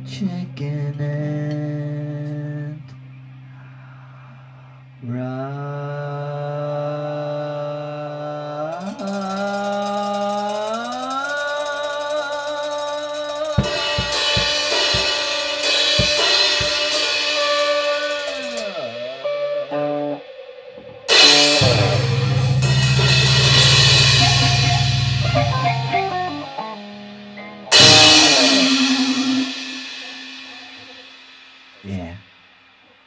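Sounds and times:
rock band jamming: 8.7 - 31.9
drums and cymbals: 8.7 - 33.0
sustained guitar notes: 8.8 - 32.2
heavy bass line: 13.5 - 19.7, 20.8 - 30.9.

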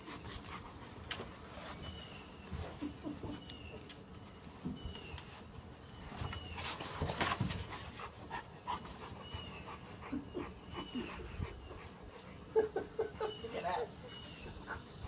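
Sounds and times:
dog panting: 7.4 - 15.0.

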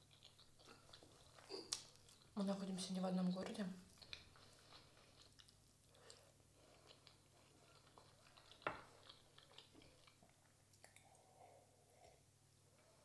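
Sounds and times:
quiet chewing: 0.0 - 13.0
wet mouth clicks: 10.1 - 11.3.

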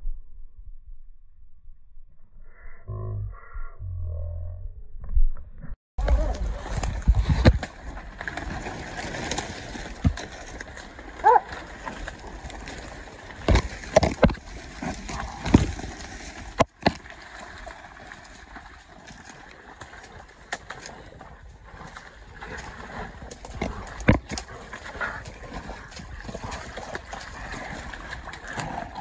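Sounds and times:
sharp splashes and knocks: 6.0 - 29.0
water sloshing: 6.0 - 29.0.

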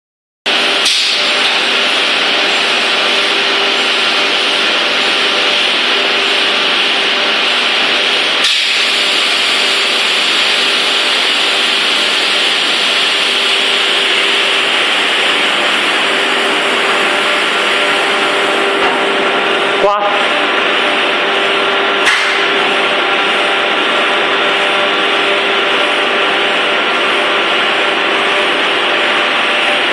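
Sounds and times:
machine hiss: 0.6 - 19.1.

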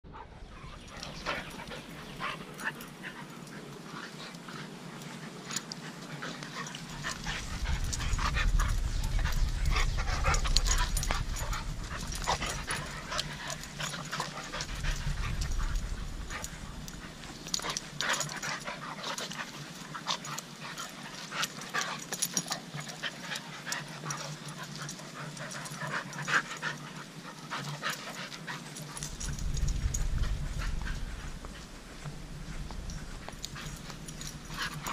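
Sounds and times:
dogs panting: 0.1 - 34.9
scattered clicks and rustles: 0.9 - 34.9
low rumble: 6.9 - 17.3, 29.1 - 34.9.

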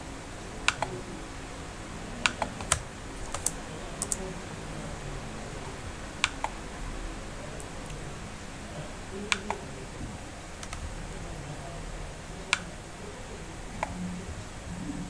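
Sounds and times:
computer keyboard and mouse clicks: 0.7 - 1.0, 2.2 - 4.3, 6.2 - 6.6, 9.3 - 9.6, 10.6 - 10.8.

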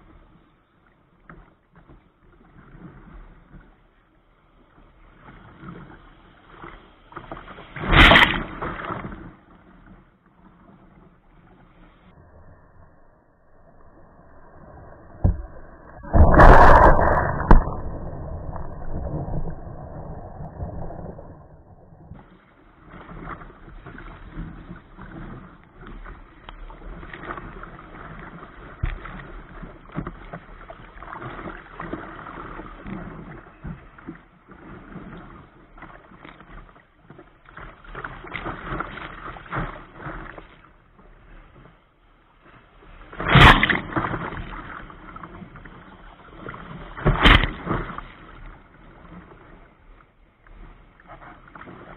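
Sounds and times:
surf sloshing around hull: 0.0 - 51.9
loud splash: 14.7 - 22.2
kayak crashing onto water: 15.2 - 22.2, 47.0 - 48.0.

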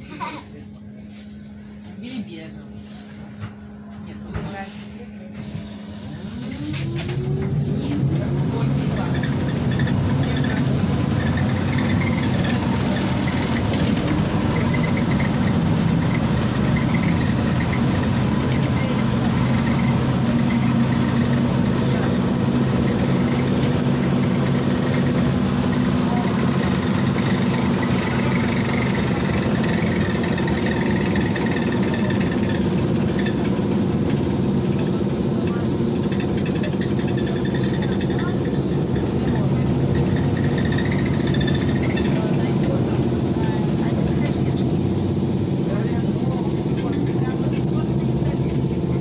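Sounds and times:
trolleybus cabin rumble: 0.0 - 49.0.

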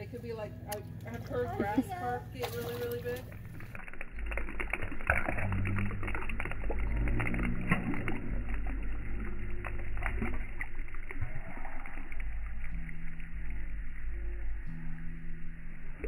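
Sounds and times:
low droning tones: 0.0 - 16.0
fish slurping at water surface: 2.3 - 12.8.

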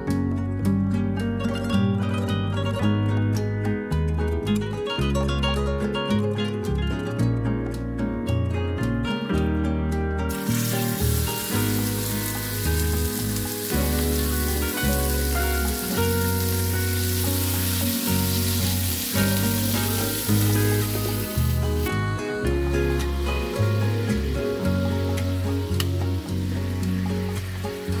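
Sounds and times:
background music with bass line: 0.0 - 28.0
chicken sizzling in hot oil: 10.3 - 28.0.

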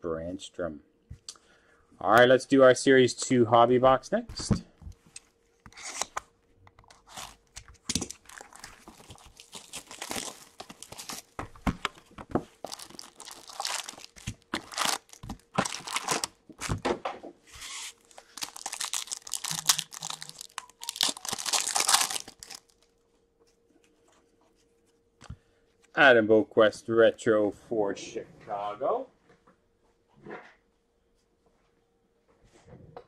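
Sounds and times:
plastic wrapping tearing and crinkling: 5.7 - 16.8, 17.6 - 22.9
foil pack ripping: 6.9 - 11.4, 12.6 - 16.8, 17.6 - 22.8.

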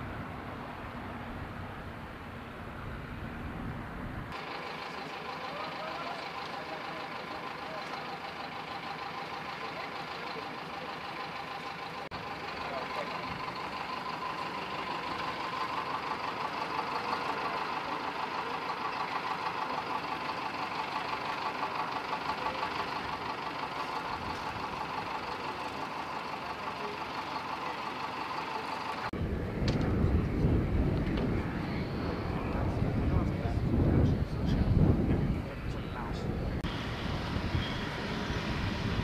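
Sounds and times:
jet engine whine and hum: 29.1 - 39.0
wind rumble on microphone: 29.2 - 39.0.

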